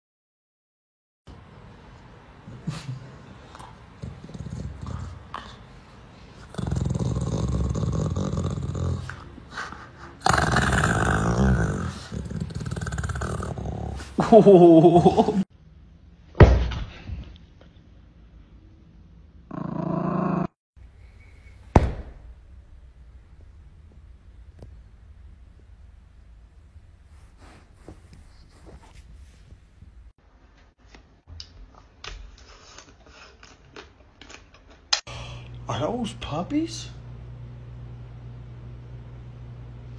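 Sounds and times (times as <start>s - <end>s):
dog growling: 2.5s - 5.8s, 6.4s - 14.2s, 19.5s - 20.6s
hand slap: 21.7s - 22.2s.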